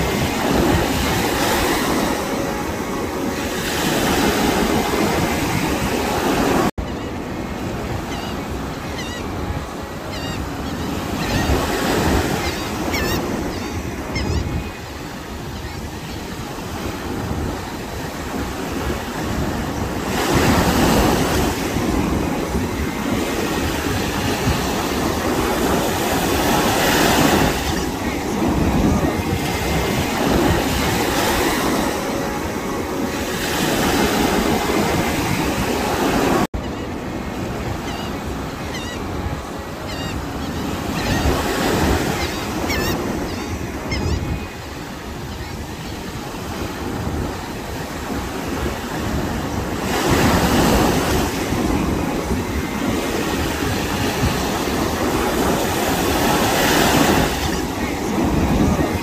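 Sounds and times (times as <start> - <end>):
small waves breaking on a beach: 0.0 - 59.0.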